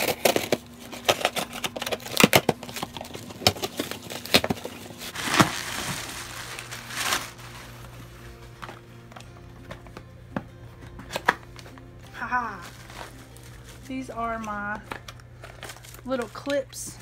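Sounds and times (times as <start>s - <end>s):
cardboard box tearing: 0.0s - 7.7s
plastic bag crinkling: 0.0s - 8.9s, 12.2s - 17.0s.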